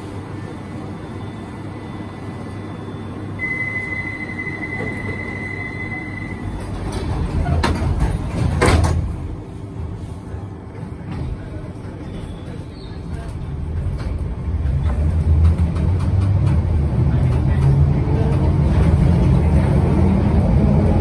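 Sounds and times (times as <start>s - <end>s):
train carriage low rumble: 0.0s - 21.0s
high door warning beep: 3.4s - 6.5s
sliding doors closing with knocks: 6.6s - 9.3s.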